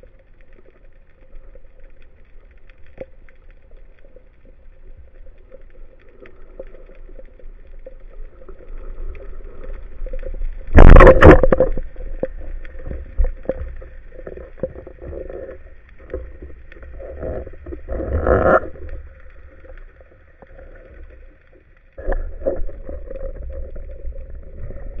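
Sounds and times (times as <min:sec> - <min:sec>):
muffled underwater noise: 0:03.2 - 0:25.0
rush of water: 0:08.0 - 0:21.2
underwater clicks: 0:08.6 - 0:21.0.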